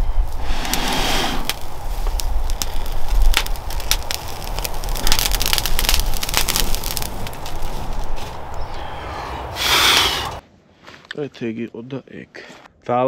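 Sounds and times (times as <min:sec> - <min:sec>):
dry grass crackling: 0:00.0 - 0:09.0
breath blowing: 0:00.4 - 0:01.5, 0:08.9 - 0:10.4.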